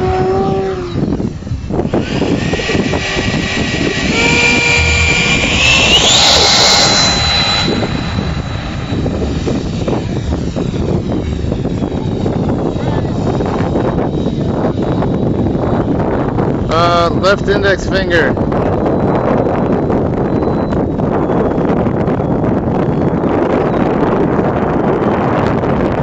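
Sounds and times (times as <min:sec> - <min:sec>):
electric ducted fan whining: 0:00.0 - 0:26.0.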